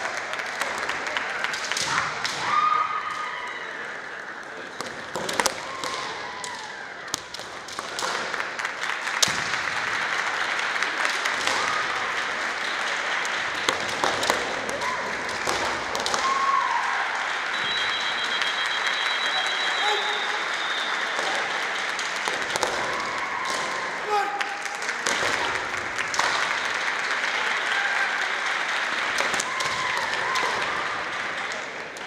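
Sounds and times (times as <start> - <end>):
hall background noise: 0.0 - 32.0
fencers shouting: 19.2 - 21.4, 22.7 - 24.7.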